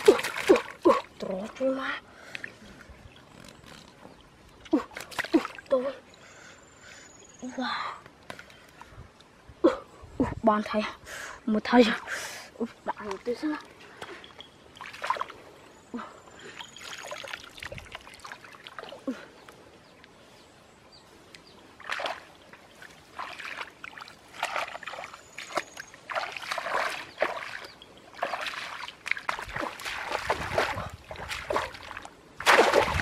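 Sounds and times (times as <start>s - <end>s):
feet wading through water: 0.0s - 1.4s, 13.0s - 15.6s, 16.4s - 19.5s, 21.7s - 33.0s
trap plunging into water: 32.4s - 33.0s.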